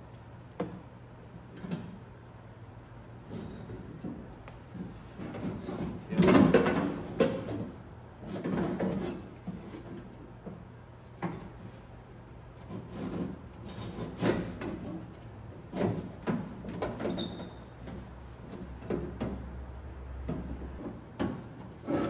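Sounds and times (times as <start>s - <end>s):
metal clunks and scrapes: 3.2s - 11.9s, 12.5s - 19.6s, 20.2s - 22.0s.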